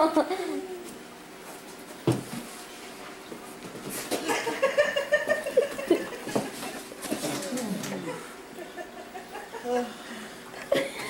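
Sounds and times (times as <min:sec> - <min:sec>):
person laughing in high-pitched pulses: 0:00.0 - 0:00.9.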